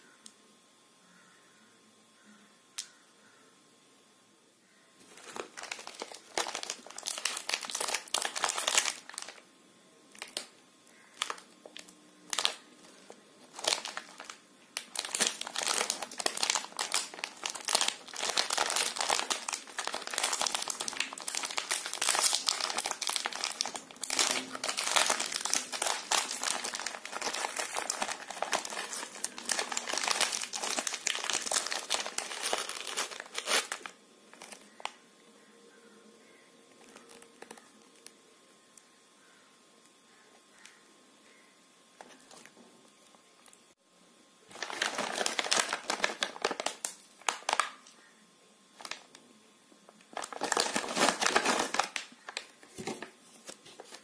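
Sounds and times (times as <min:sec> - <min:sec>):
snack wrapper crinkling: 0:05.0 - 0:09.4, 0:10.1 - 0:35.0, 0:36.8 - 0:38.1, 0:44.5 - 0:48.0, 0:48.8 - 0:49.2, 0:50.0 - 0:54.0.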